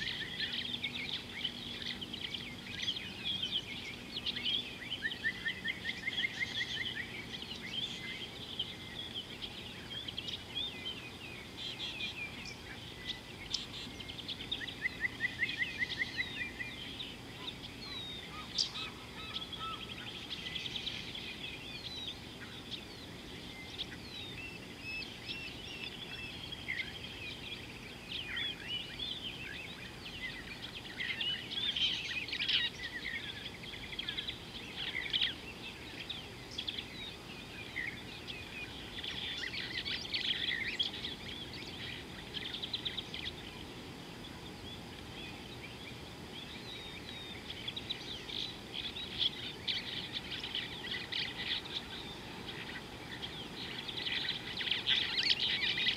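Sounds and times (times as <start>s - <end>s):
birds chirping and singing: 0.0s - 55.9s
low background hiss: 0.0s - 55.9s.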